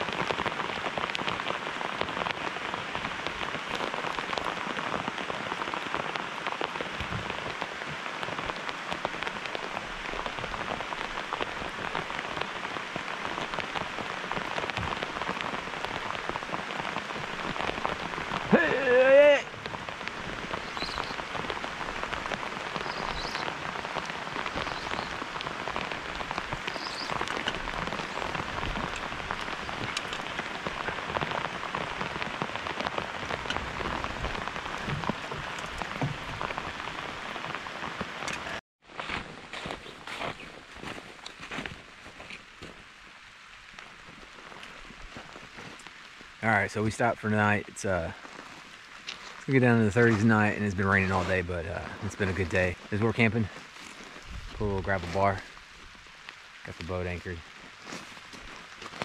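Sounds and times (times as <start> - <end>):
rain falling on water: 0.0 - 59.0
person shouting: 18.5 - 19.5.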